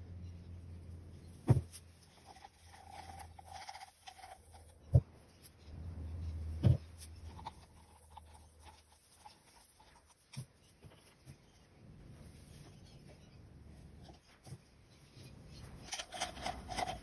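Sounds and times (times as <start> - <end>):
dull thump: 1.4 - 1.8.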